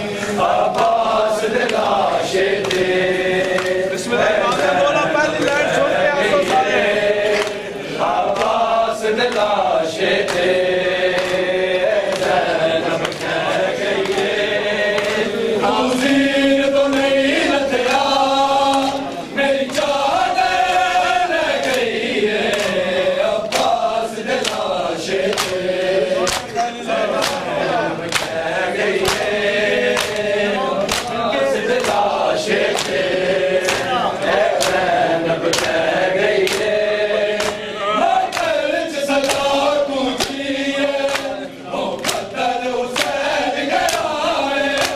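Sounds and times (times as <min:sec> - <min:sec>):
men chanting in unison: 0:00.0 - 0:44.9
chest-beating slaps: 0:06.4 - 0:08.6, 0:09.2 - 0:15.3, 0:23.5 - 0:44.1.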